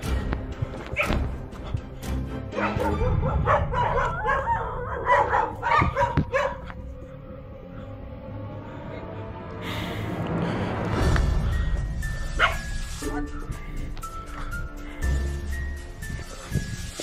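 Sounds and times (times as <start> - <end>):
background music: 0.0 - 17.0
dog barking and yelping: 2.5 - 6.8, 12.4 - 12.7.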